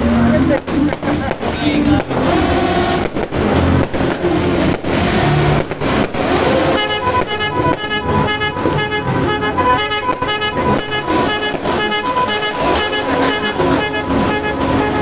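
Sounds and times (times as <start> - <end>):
fireworks banging and crackling: 0.0 - 15.0
horn short toots: 6.3 - 15.0.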